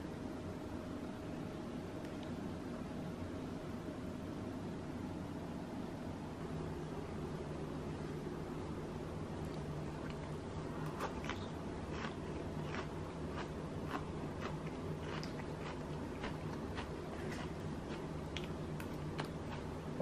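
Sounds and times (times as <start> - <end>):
low room hum: 0.0 - 20.0.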